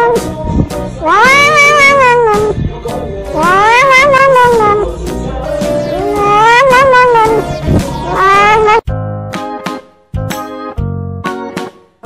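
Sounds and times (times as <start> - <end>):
background music: 0.0 - 12.0
cat meowing: 1.0 - 2.6, 3.4 - 4.9, 6.0 - 8.9.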